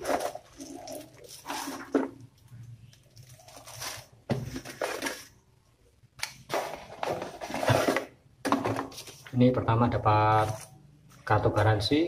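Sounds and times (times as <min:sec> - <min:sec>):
plastic and cardboard rustling: 0:00.0 - 0:05.4, 0:06.4 - 0:09.4.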